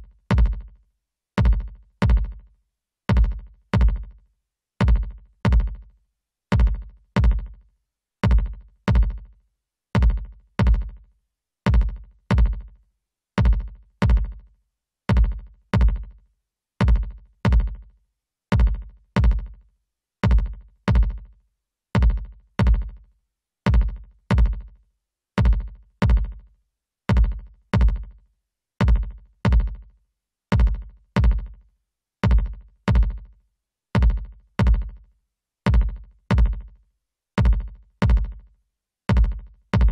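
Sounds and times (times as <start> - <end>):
heavy electronic drum beat: 0.0 - 0.8, 1.4 - 2.5, 3.1 - 4.2, 4.8 - 5.9, 6.5 - 7.6, 8.2 - 9.4, 10.0 - 11.0, 11.7 - 12.8, 13.4 - 14.5, 15.1 - 16.2, 16.8 - 17.9, 18.5 - 19.6, 20.2 - 21.4, 22.0 - 23.0, 23.7 - 24.8, 25.4 - 26.5, 27.1 - 28.2, 28.8 - 29.9, 30.5 - 31.6, 32.2 - 33.4, 34.0 - 35.1, 35.7 - 36.8, 37.4 - 38.5, 39.1 - 39.9.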